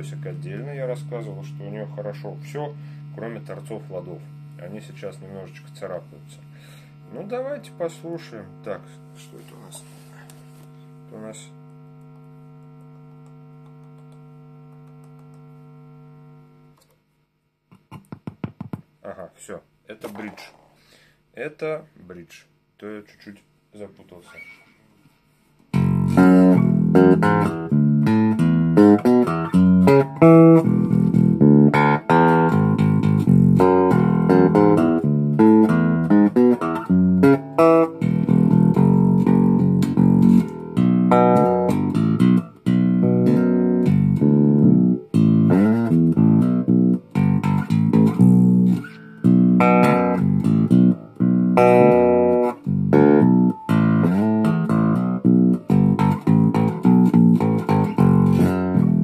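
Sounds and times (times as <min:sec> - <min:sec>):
electric bass guitar plucked: 0:00.0 - 0:09.2, 0:25.7 - 0:59.0.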